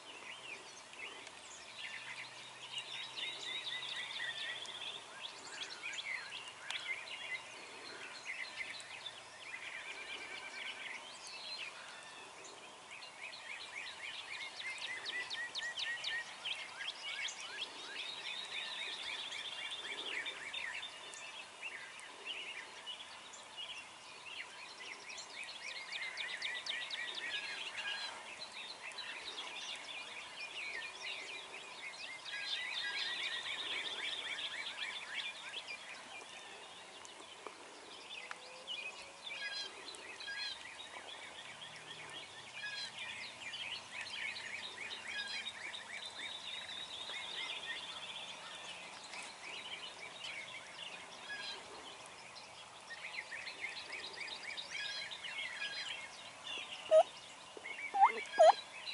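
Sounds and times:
birds calling and trilling: 0.0s - 58.9s
turkey gobbling: 58.0s - 58.6s.

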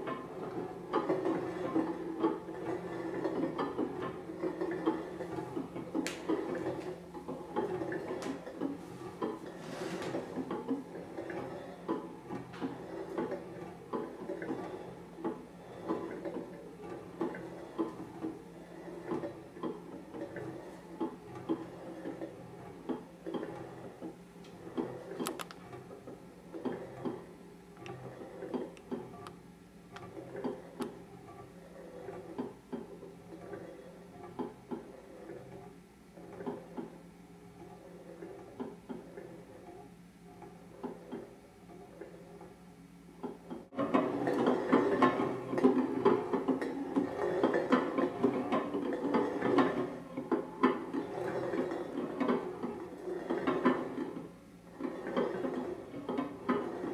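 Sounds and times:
pot lids spinning on wooden table: 0.0s - 25.9s, 43.3s - 56.9s.

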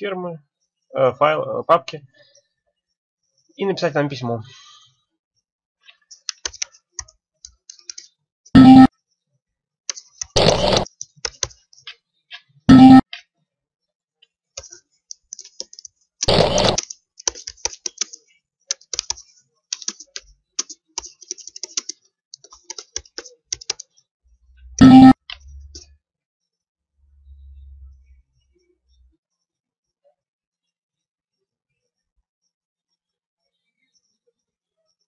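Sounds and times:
keyboard typing: 6.0s - 8.9s, 9.9s - 12.0s, 14.6s - 24.0s.

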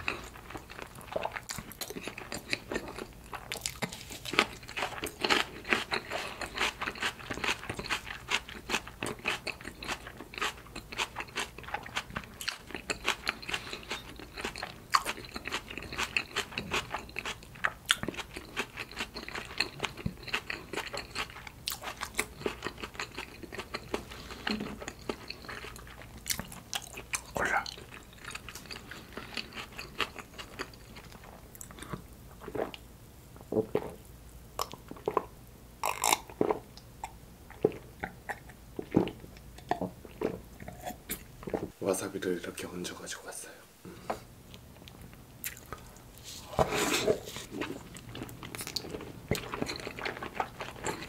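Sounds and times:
person chewing close to microphone: 0.0s - 32.8s, 44.5s - 51.0s.

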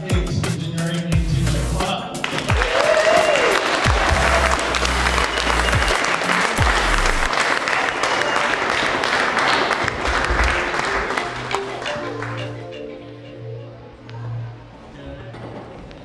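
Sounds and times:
background music: 0.0s - 15.6s
audience clapping: 2.2s - 13.0s.

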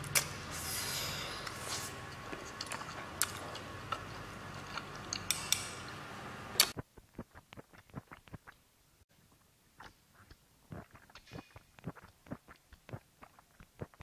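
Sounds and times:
chewing and mouth smacks: 9.8s - 14.0s.

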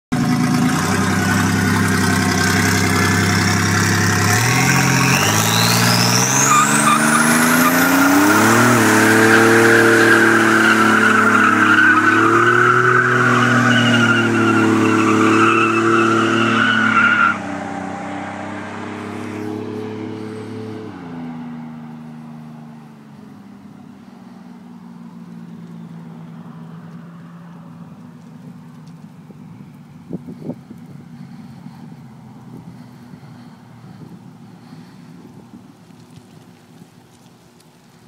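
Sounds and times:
car engine revving: 0.1s - 35.1s
tyres squealing: 4.2s - 17.4s.

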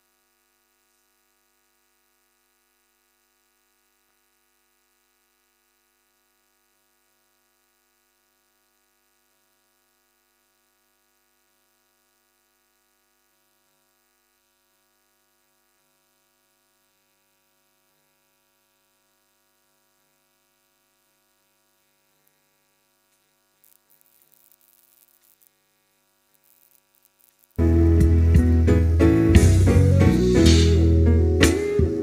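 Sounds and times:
faint electrical hum: 0.0s - 32.0s
faint crackles: 21.7s - 27.6s.

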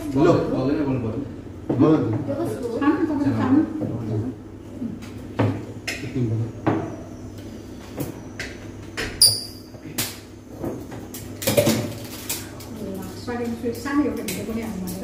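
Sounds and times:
bottles and glasses clinking on table: 9.0s - 9.8s.

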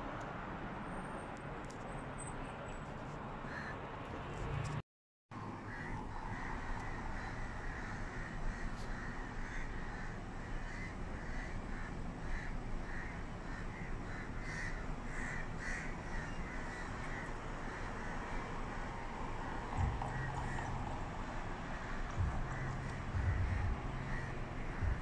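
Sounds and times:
birds calling: 5.6s - 25.0s
low background rumble: 6.0s - 25.0s.

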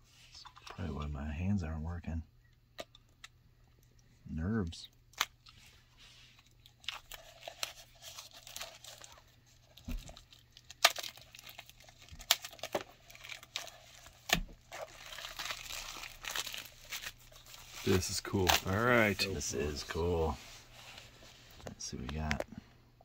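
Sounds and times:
plastic wrapping crinkling and tearing: 6.3s - 20.1s.

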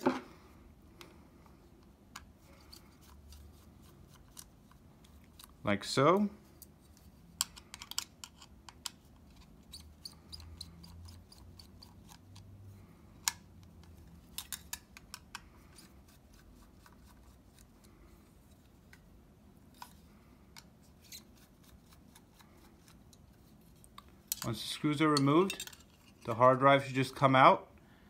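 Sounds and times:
screwdriver and metal parts clicking: 7.4s - 12.5s, 13.2s - 15.9s, 23.9s - 26.3s.

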